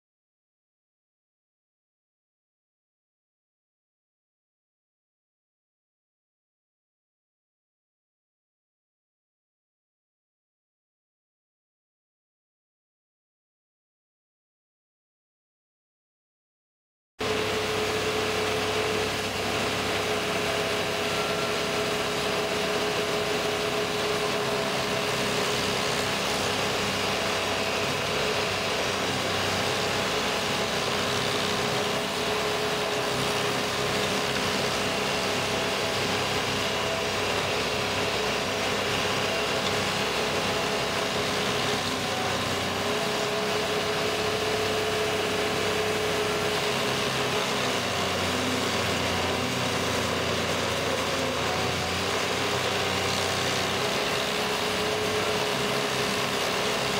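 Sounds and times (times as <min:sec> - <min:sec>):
cutter wheel grinding stump: 0:17.2 - 0:56.9
stump grinder engine running: 0:17.2 - 0:56.9.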